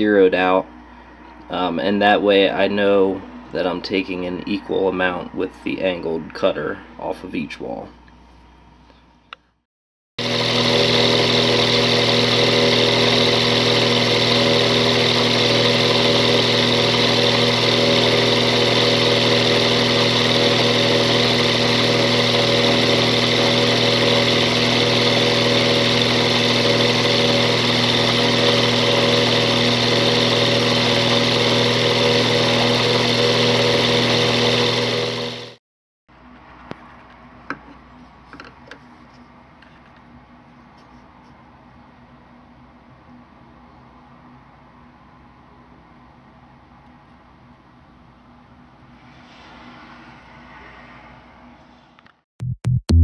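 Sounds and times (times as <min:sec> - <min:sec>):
milling machine hum: 0:10.2 - 0:35.6.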